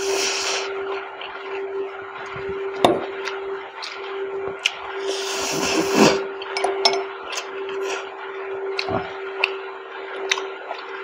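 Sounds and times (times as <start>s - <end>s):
steady hum: 0.0s - 11.0s
metal fork clinking in glass bowl: 6.6s - 7.1s
close chewing with wet mouth clicks: 10.2s - 10.9s.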